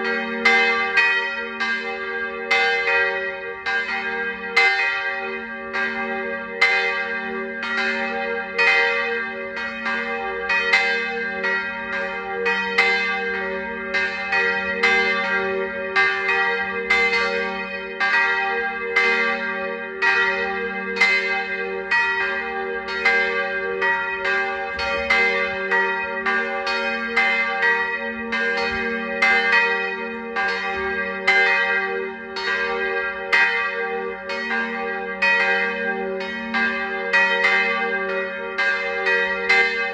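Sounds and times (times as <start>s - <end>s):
church bells ringing: 0.0s - 39.9s.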